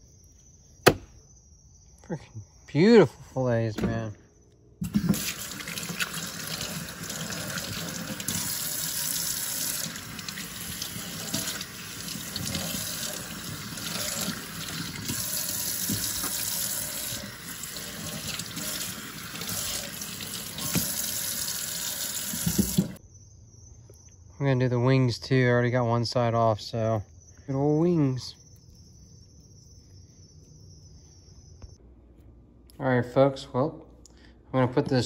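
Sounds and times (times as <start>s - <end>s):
tap water splashing in sink: 4.8s - 23.0s.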